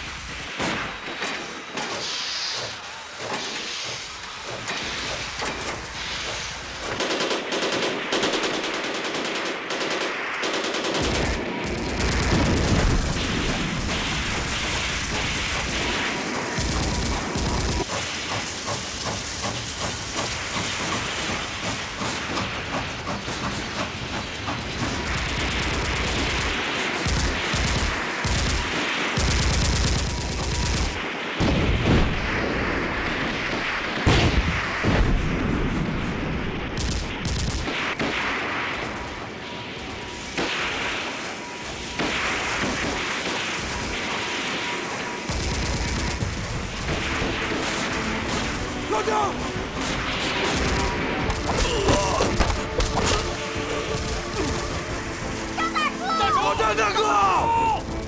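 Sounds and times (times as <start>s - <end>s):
steam locomotive hissing: 0.0s - 7.5s, 12.6s - 31.3s
rifle and machine-gun fire: 6.8s - 19.4s, 24.6s - 55.6s.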